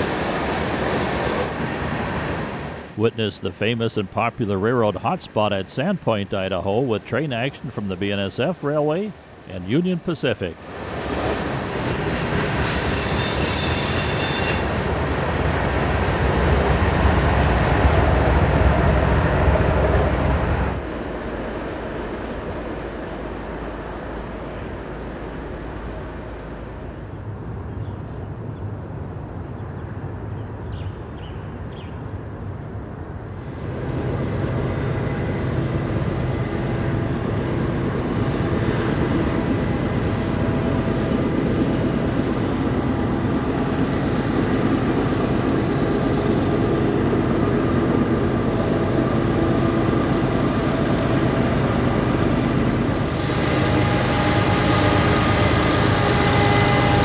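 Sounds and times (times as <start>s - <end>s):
diesel locomotive engine drone: 0.0s - 57.0s
bird chirps: 27.1s - 32.0s.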